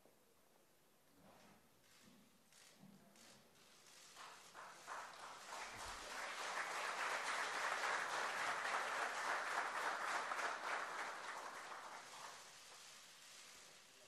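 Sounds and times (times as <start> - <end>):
audience applauding: 3.8 - 13.9.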